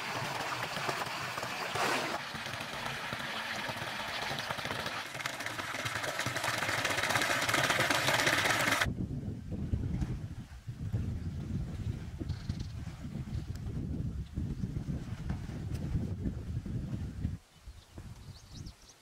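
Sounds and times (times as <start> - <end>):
water pouring into pool: 0.0 - 8.9.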